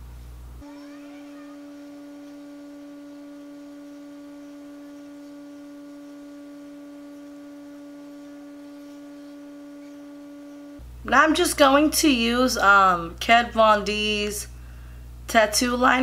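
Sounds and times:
steady hum on one note: 0.0s - 16.0s.

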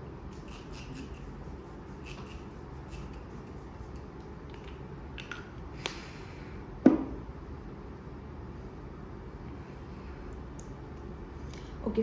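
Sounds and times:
knock: 6.9s - 7.1s.

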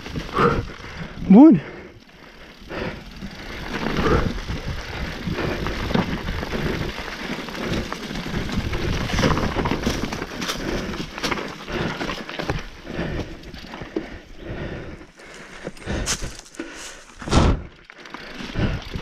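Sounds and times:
bike rattling: 0.0s - 19.0s
tyres crunching over stones and leaves: 3.2s - 14.2s, 15.1s - 19.0s.

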